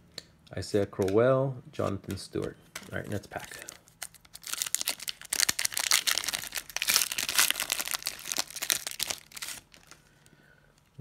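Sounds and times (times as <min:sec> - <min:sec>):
foil wrapper tearing and crinkling: 0:02.9 - 0:10.1.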